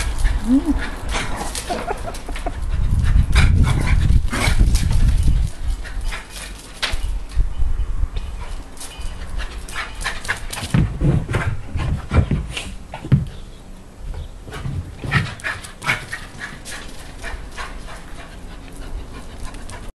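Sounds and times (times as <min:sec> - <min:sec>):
dog panting: 0:15.0 - 0:19.9.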